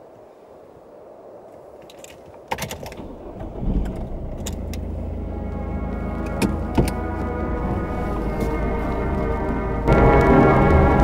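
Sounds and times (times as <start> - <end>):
car engine rumble: 2.7 - 11.0
droning music tones: 3.0 - 11.0.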